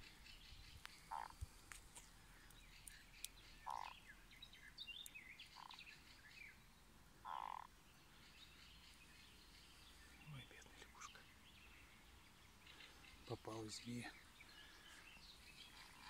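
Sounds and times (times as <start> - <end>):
frog croaking buzzily: 1.1 - 1.4, 3.6 - 4.0, 5.6 - 5.8, 7.2 - 7.7.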